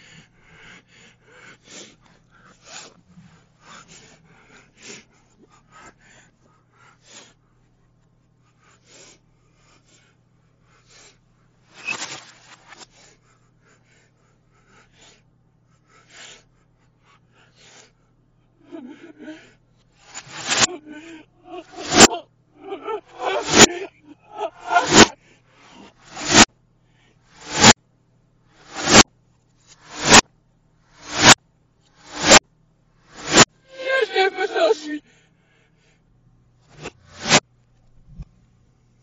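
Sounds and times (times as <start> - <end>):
breathy huffs: 0.0 - 7.8, 12.9 - 27.2, 33.2 - 37.4
low steady hum: 0.0 - 39.0.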